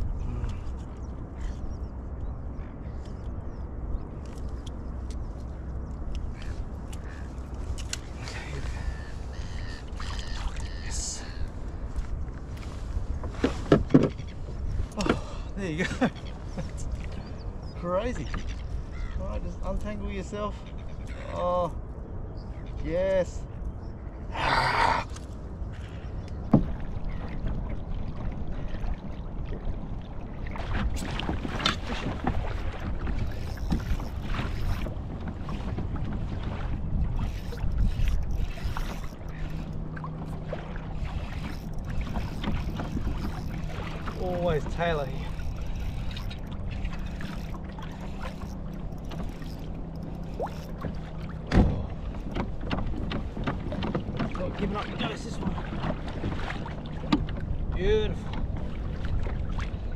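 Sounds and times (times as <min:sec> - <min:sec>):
wind rumble on microphone: 0:00.0 - 0:59.9
water lapping against kayak hull: 0:04.3 - 0:19.3, 0:24.3 - 0:59.9
splashes: 0:26.6 - 0:52.8, 0:53.6 - 0:57.5
faint clicks: 0:45.2 - 0:51.0
knocks on kayak: 0:51.5 - 0:54.4.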